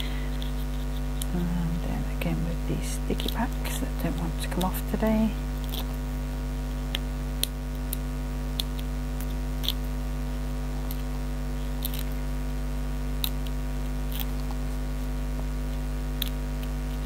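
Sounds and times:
electrical mains hum: 0:00.0 - 0:17.0
fingernails clicking and scratching: 0:00.4 - 0:01.3, 0:11.7 - 0:12.2.

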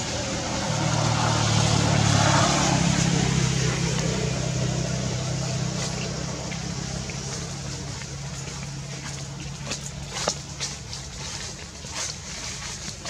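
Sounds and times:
vehicle engine droning: 0:00.0 - 0:13.0.

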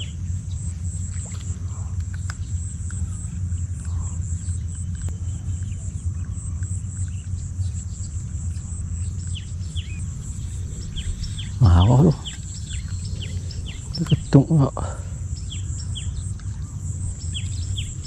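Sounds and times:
high-pitched insect drone: 0:00.0 - 0:18.0
wind rumbling on microphone: 0:00.0 - 0:18.0.

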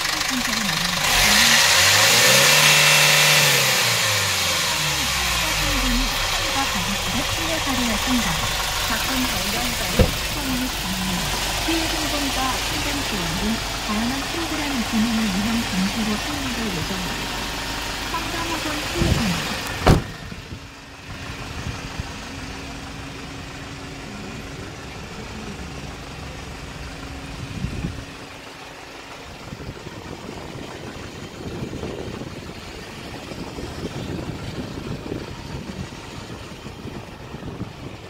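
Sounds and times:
truck engine idling: 0:00.0 - 0:38.0
thump: 0:10.0 - 0:10.3, 0:19.8 - 0:20.2
wind buffeting microphone: 0:27.3 - 0:28.4, 0:29.3 - 0:38.0.

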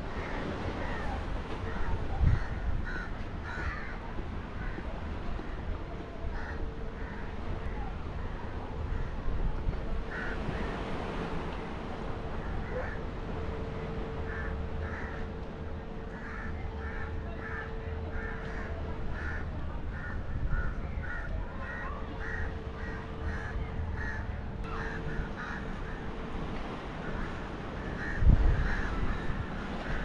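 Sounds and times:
steady low rumble: 0:00.0 - 0:30.0
crows cawing: 0:02.3 - 0:04.0, 0:10.1 - 0:10.5, 0:14.3 - 0:15.3, 0:16.1 - 0:26.2, 0:27.0 - 0:30.0.

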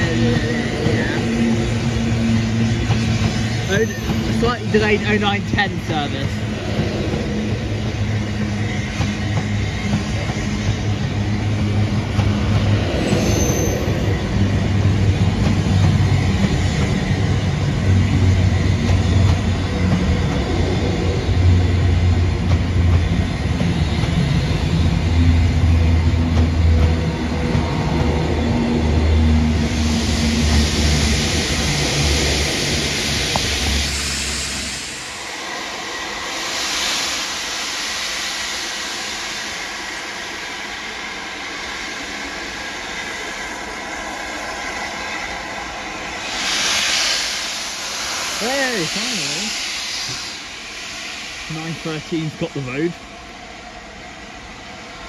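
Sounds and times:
high squeal: 0:00.0 - 0:04.8, 0:12.9 - 0:14.9
electric train hum: 0:00.0 - 0:55.0.

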